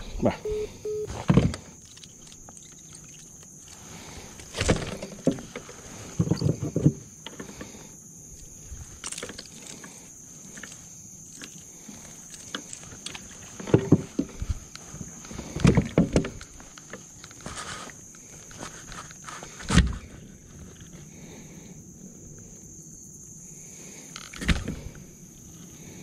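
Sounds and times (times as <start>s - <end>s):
faint high-pitched tone: 0.3s - 1.1s.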